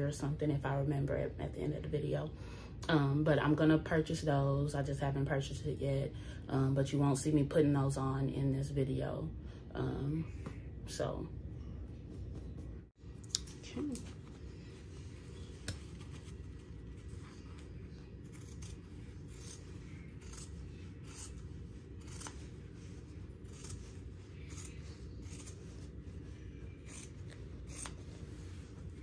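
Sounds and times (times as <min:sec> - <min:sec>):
scissors snipping canvas: 0:22.0 - 0:22.5, 0:26.8 - 0:28.0.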